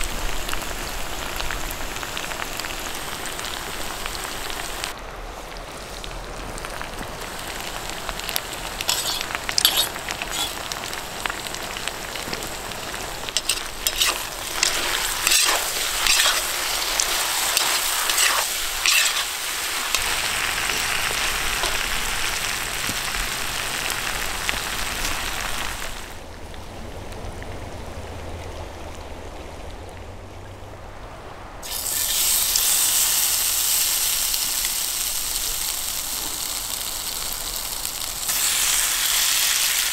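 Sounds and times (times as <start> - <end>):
food sizzling in a pot: 0.0 - 5.0, 7.2 - 26.1, 31.6 - 39.9
stirring clicks and scrapes: 8.8 - 10.7, 12.2 - 21.8.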